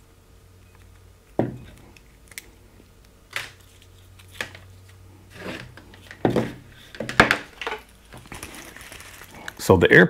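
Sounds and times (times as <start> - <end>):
plastic parts handled on table: 3.3 - 9.6.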